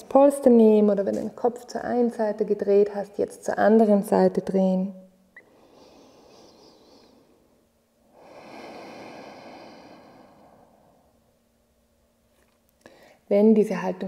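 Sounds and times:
woman breathing: 5.4 - 11.3, 12.8 - 13.3.

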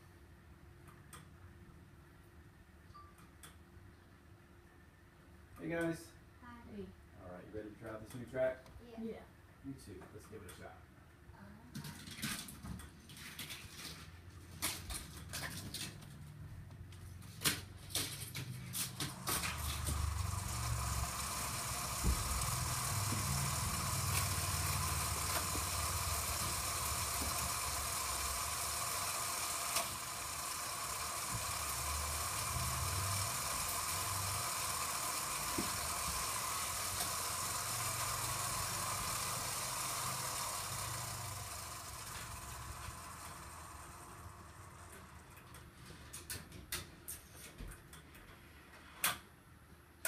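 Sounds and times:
low rumble of rolling toys: 11.5 - 46.3
toy track mechanical whir: 13.2 - 16.1, 17.2 - 45.6.

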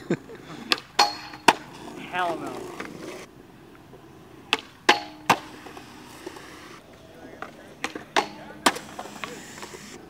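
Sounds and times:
skateboard wheels rolling on concrete: 0.0 - 10.0
skateboard clacks: 0.7 - 3.1.

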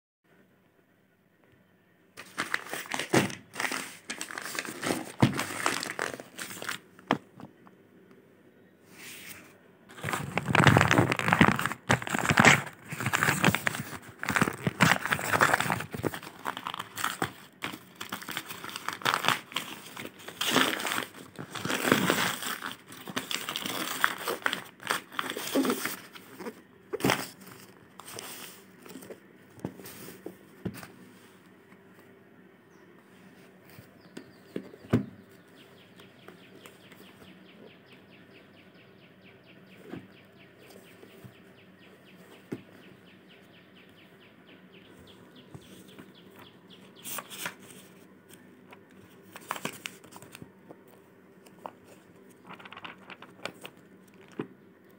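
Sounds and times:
paper tearing and crumpling: 2.2 - 6.8, 9.3 - 29.0, 49.3 - 50.4, 52.4 - 54.4.

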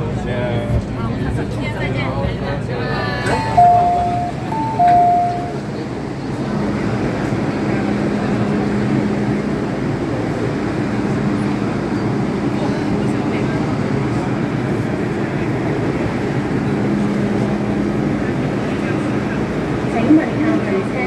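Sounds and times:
train and station noise: 0.0 - 21.0
two-note door chime: 3.3 - 5.6.

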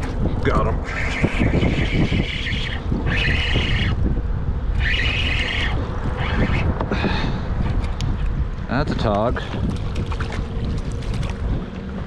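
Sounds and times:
wind rumble on microphone: 0.0 - 12.0
fishing reel whirring: 4.8 - 6.7.

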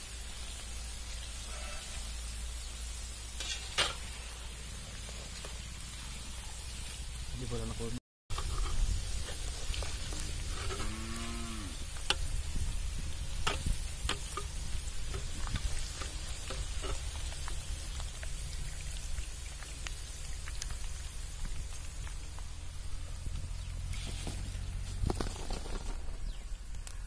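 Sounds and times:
food deep-frying in oil: 0.0 - 25.2
skimmer stirring in oil: 3.3 - 5.6, 11.8 - 20.9.

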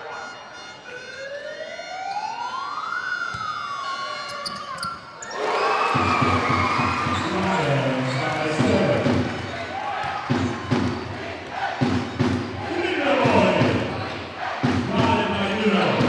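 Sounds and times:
crowd cheering: 5.2 - 16.0.

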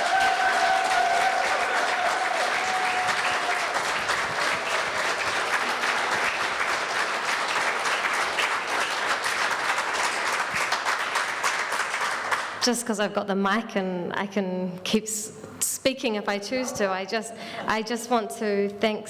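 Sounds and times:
audience applauding: 0.0 - 12.6.

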